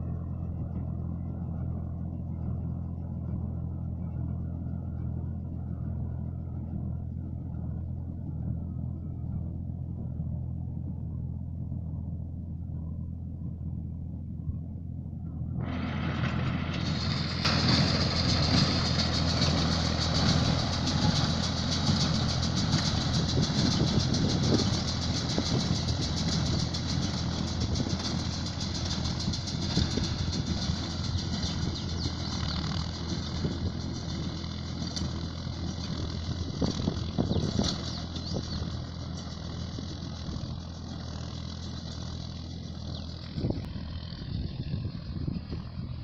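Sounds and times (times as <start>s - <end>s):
tractor engine under load: 0.0s - 46.0s
baler mechanical clatter: 15.6s - 45.6s.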